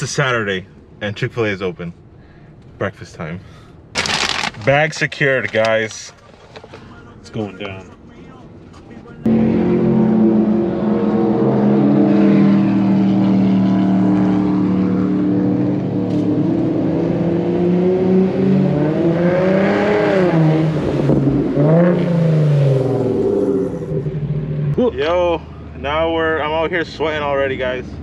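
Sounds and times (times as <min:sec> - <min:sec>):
car engine revving: 0:09.2 - 0:24.8.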